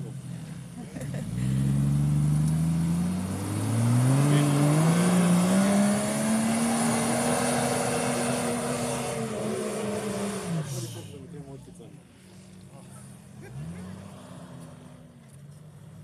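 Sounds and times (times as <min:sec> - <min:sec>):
car engine revving under load: 0:00.0 - 0:16.0.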